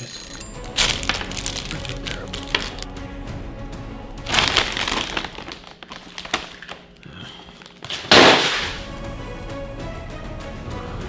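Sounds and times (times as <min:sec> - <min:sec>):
plastic packaging crinkling: 0:00.7 - 0:02.9, 0:04.3 - 0:08.6.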